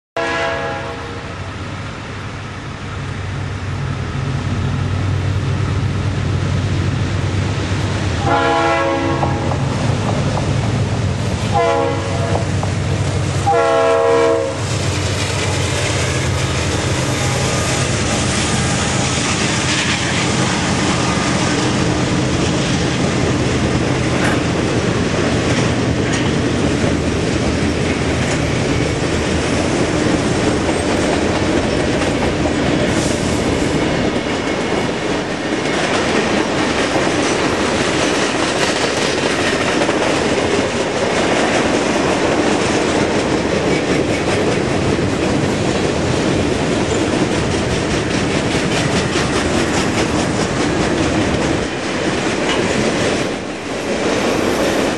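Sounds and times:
train horn blasts: 0.2s - 1.3s, 8.2s - 9.6s, 11.5s - 12.6s, 13.4s - 14.7s
low rumble of locomotive engines: 0.2s - 54.9s
train wheels clattering on rails: 3.8s - 54.9s.

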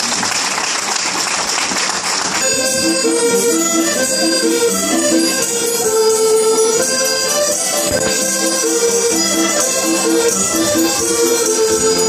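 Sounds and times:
applause: 0.0s - 2.6s
accordion folk tune: 2.4s - 12.0s.

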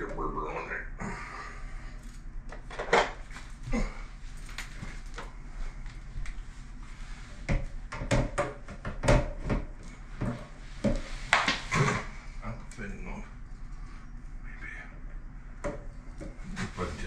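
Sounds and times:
faint low hum: 0.0s - 17.0s
tools knocking on plastic pipes: 7.5s - 11.5s.

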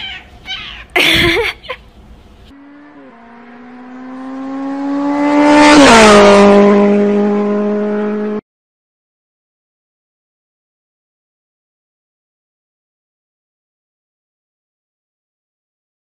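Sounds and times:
person crying out: 0.0s - 1.8s.

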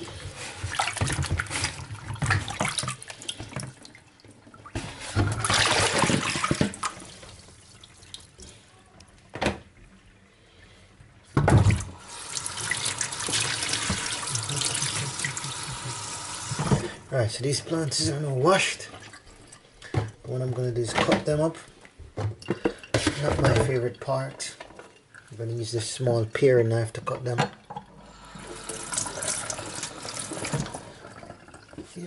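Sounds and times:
water gushing into sink: 4.7s - 8.0s, 11.6s - 19.5s, 28.0s - 32.0s
kitchen tap running: 11.6s - 19.2s, 28.0s - 32.0s.

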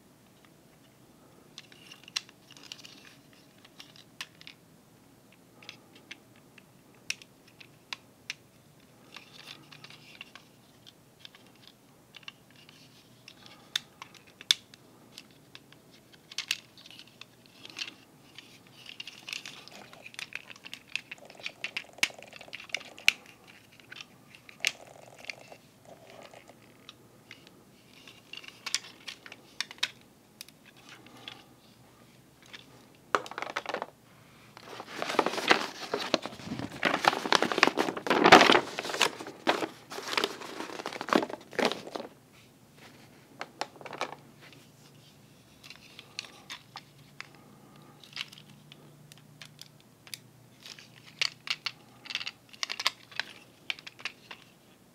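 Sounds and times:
handling rustle: 8.8s - 33.9s, 34.5s - 48.8s
paper sheet crinkling: 16.2s - 30.0s, 34.6s - 42.2s.

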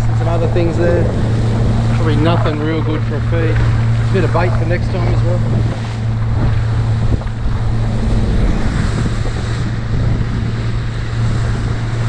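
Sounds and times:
outboard motor droning: 0.0s - 12.0s
water rushing past hull: 0.0s - 12.0s
wind buffeting microphone: 0.0s - 12.0s.

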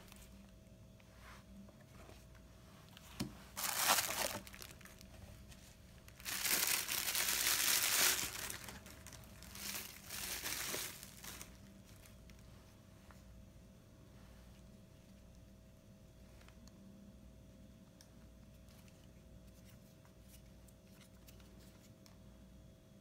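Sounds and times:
bubble wrap crinkling: 3.5s - 12.4s.

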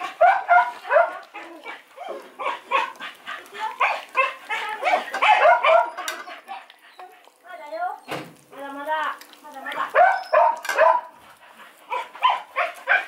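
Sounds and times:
puppy whining and grunting: 0.0s - 3.0s.

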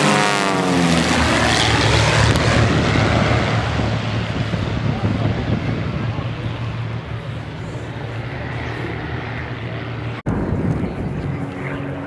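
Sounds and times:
propeller aircraft droning past: 0.0s - 12.0s.

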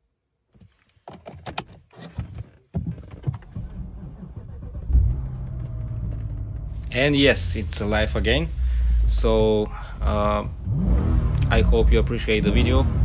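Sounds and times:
starter cranking engine: 3.4s - 6.8s
car engine idling: 3.5s - 13.0s.

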